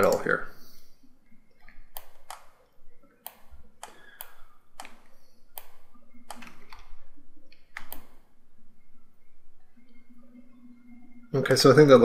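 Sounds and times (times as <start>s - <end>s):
mouse and keyboard clicks: 1.6s - 2.6s, 3.2s - 8.2s.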